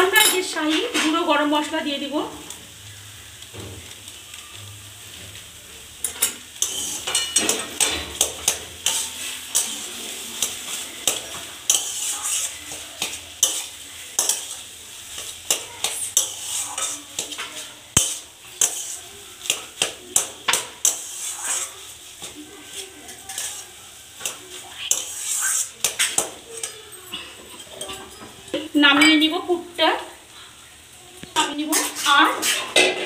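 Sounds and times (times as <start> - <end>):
light frying sizzle: 0.0 - 33.0
metal spatula scraping a pan: 6.0 - 29.3, 31.4 - 33.0.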